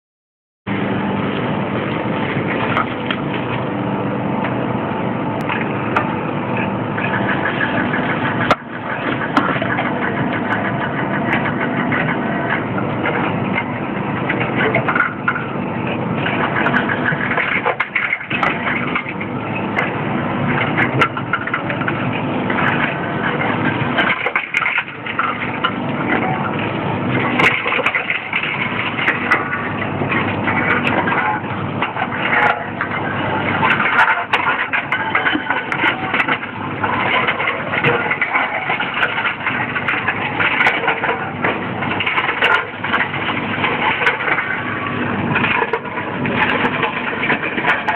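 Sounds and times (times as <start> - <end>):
vending machine running: 0.7 - 47.9
containers crunching: 20.6 - 47.9.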